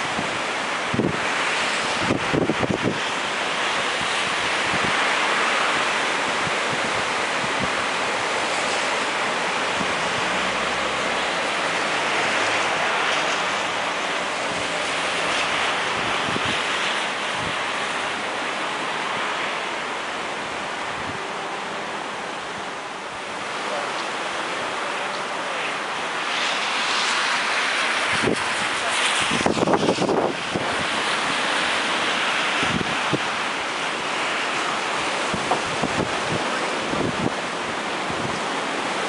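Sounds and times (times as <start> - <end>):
wind buffeting microphone: 0.0 - 5.2, 6.2 - 18.3, 26.8 - 34.1, 34.7 - 39.0
strong wind rushing through tree: 0.0 - 39.0.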